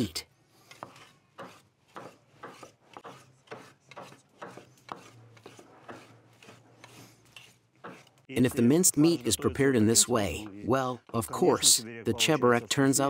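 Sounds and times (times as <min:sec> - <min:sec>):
knives chopping on wooden board: 0:00.7 - 0:08.2.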